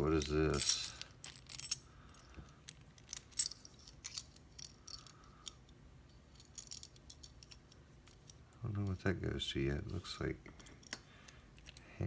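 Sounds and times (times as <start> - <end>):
keys and padlocks clinking: 0.0 - 5.6, 6.3 - 8.4.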